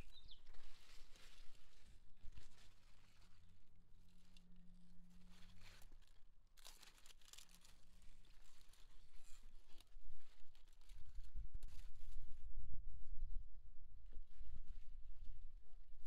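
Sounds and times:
leaves and stems rustling: 0:00.0 - 0:04.4, 0:05.0 - 0:12.1.

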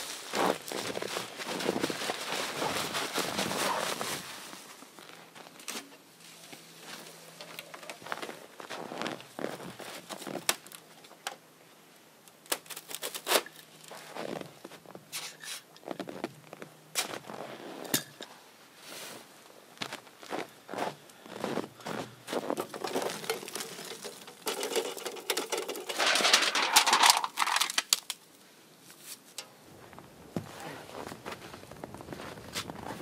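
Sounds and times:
footsteps crunching in snow: 0:00.0 - 0:10.4, 0:13.9 - 0:17.8, 0:18.8 - 0:25.1, 0:28.9 - 0:33.0
camp gear clicks and knocks: 0:05.5 - 0:08.3, 0:22.5 - 0:28.1.

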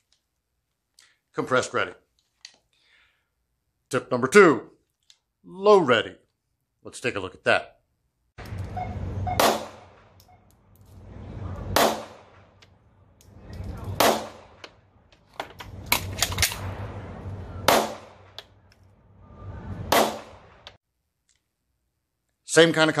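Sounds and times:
pistol shots: 0:09.4 - 0:10.1, 0:11.7 - 0:12.5, 0:14.0 - 0:14.6, 0:17.7 - 0:18.4, 0:19.9 - 0:20.6.

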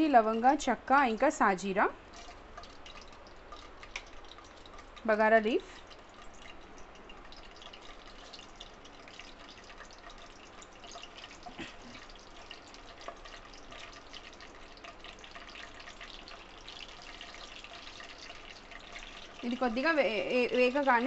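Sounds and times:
spices sizzling in hot oil: 0:00.3 - 0:21.0.

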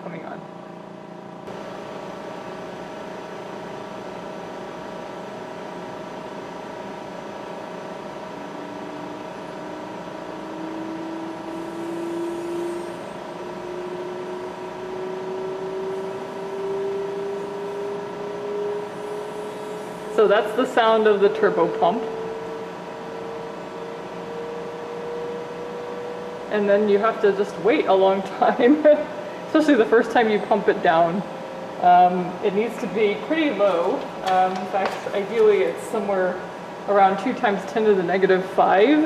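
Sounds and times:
turbo pump whine rising in pitch: 0:00.0 - 0:36.0
roughing pump humming: 0:00.7 - 0:26.4.

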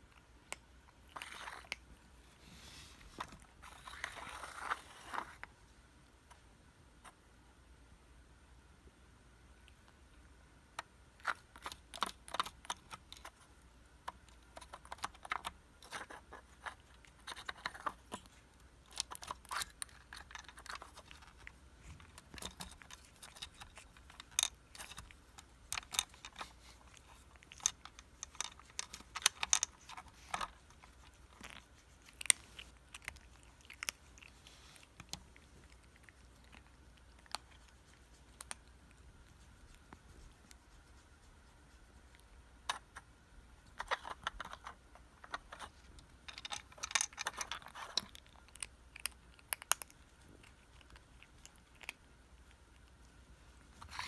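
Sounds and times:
plastic toy clicking and rattling: 0:22.3 - 0:31.5, 0:43.8 - 0:49.8.

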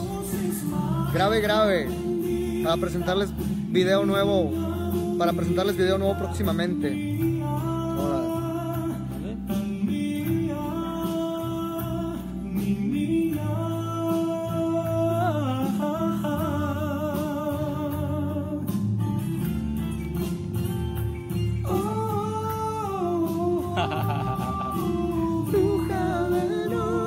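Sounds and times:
instrumental accompaniment: 0:17.1 - 0:27.0
person singing long notes: 0:21.7 - 0:27.0.

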